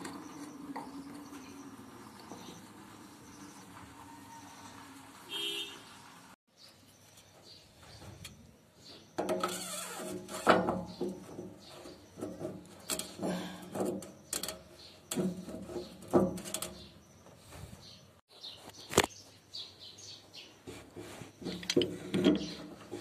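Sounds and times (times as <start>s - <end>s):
filter knocks and scrapes: 9.2s - 16.9s, 20.7s - 23.0s.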